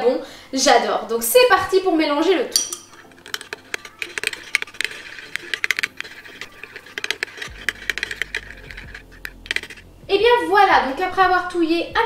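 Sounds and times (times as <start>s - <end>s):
metal spoon scraping glass bowl: 2.4s - 9.9s.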